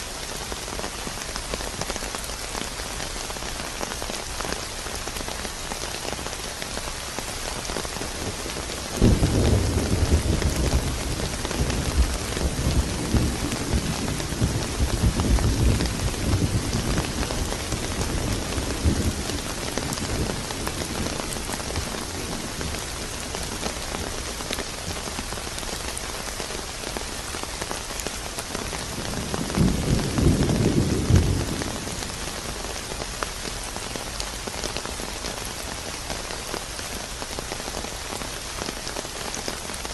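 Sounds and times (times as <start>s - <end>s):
steady rain: 0.0s - 39.9s
thunder crack and rumble: 8.3s - 22.8s, 28.9s - 32.3s.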